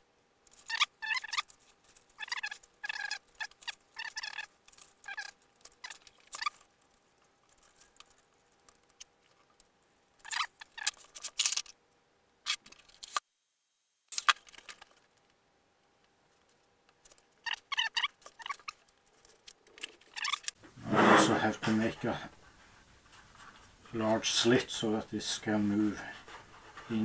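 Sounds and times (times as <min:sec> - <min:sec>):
handling clicks and rustles: 0:00.4 - 0:11.8, 0:14.1 - 0:20.6.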